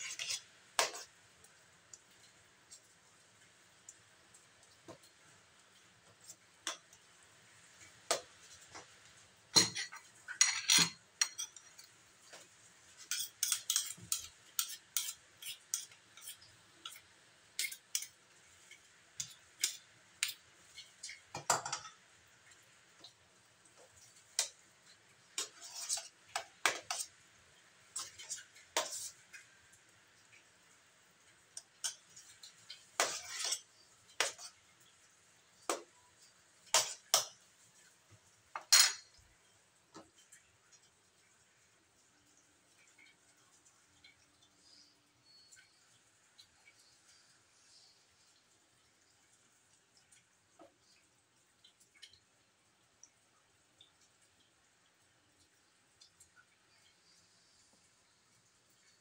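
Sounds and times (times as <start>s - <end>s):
metal spoon scraping a steel tray: 0.0s - 1.0s, 13.1s - 16.4s, 25.4s - 26.1s, 33.0s - 34.5s.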